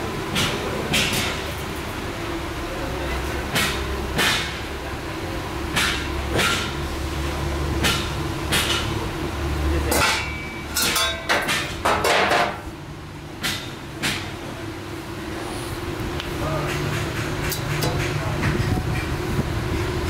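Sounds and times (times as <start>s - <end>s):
hammer striking steel: 3.5s - 4.6s, 5.7s - 6.8s, 9.9s - 12.6s.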